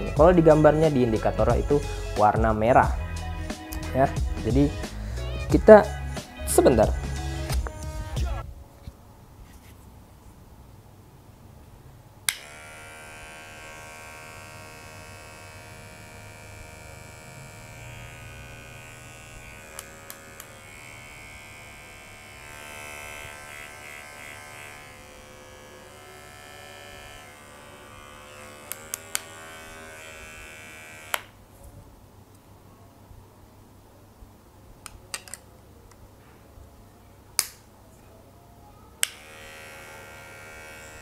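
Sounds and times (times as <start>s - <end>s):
hair clipper switch click: 12.3s - 12.7s, 18.8s - 20.6s, 28.3s - 29.4s, 31.0s - 31.3s, 39.0s - 39.6s
hair clipper electric buzz: 12.3s - 31.4s, 39.0s - 41.0s.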